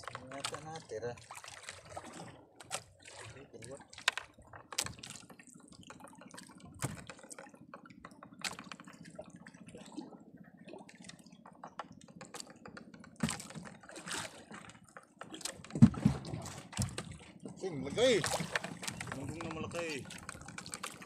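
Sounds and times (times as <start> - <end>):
water dripping and splashing: 0.0 - 7.5, 13.2 - 21.0.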